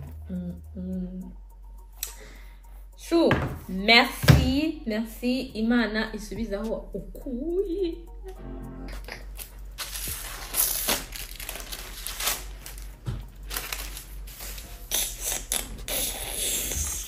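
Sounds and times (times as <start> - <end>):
paper sheet crinkling: 9.0 - 15.6.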